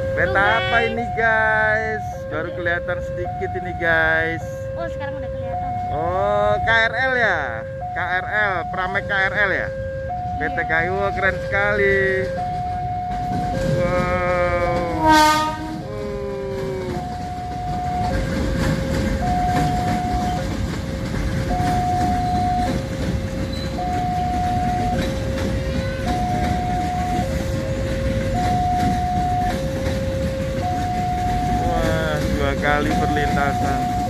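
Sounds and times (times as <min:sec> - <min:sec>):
train rumbling past: 0:00.0 - 0:34.0
two-tone crossing alarm: 0:00.0 - 0:34.0
wheels clicking: 0:11.9 - 0:34.0.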